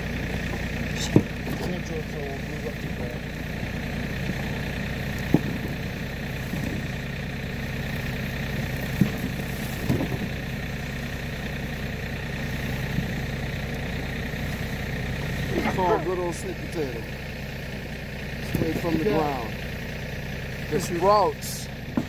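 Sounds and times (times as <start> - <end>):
vehicle engine idling: 0.0 - 22.0
knocks on wooden truck bed: 0.5 - 1.7, 5.2 - 5.9, 8.9 - 10.4.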